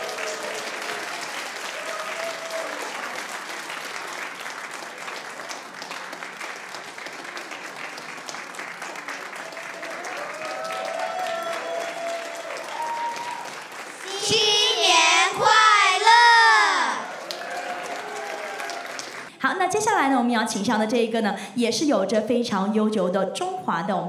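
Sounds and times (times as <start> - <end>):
audience applauding: 0.0 - 19.3
high-pitched voices calling out: 14.0 - 17.1.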